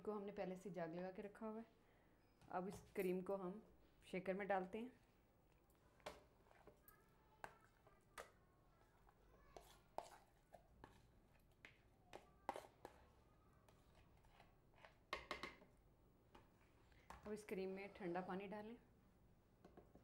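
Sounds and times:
bowl being scraped: 8.9 - 11.1, 12.1 - 15.0.

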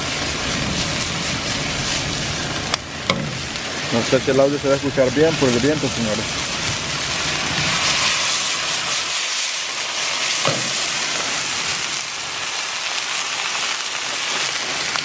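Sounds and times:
meat sizzling in hot oil: 0.0 - 15.0
oil popping: 0.7 - 9.2, 10.1 - 12.1.

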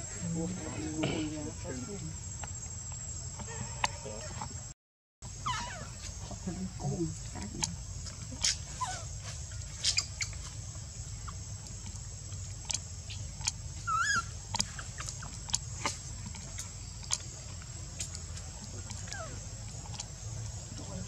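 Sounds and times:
baby monkey squeaking: 5.4 - 6.1, 8.4 - 9.2, 9.8 - 10.4, 13.8 - 15.4, 19.0 - 19.4.

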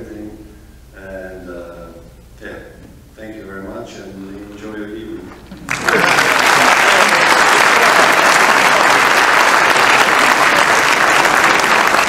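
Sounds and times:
audience applause: 5.6 - 12.0.

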